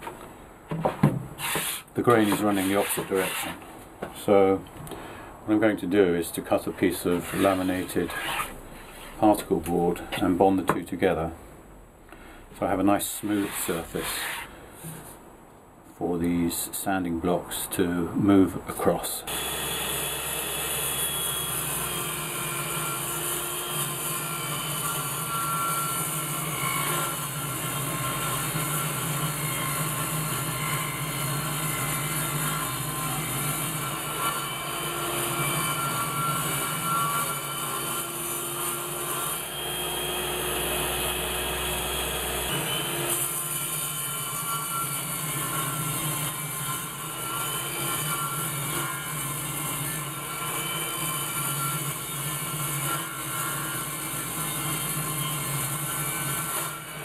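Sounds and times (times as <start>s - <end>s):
table saw cutting wood: 1.4s - 3.6s, 7.0s - 9.1s, 19.3s - 57.0s.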